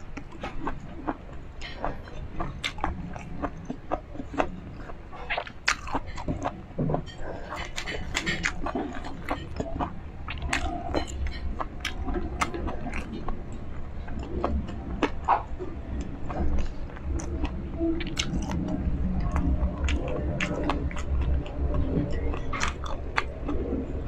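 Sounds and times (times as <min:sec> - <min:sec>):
crunchy chewing: 0:00.0 - 0:24.0.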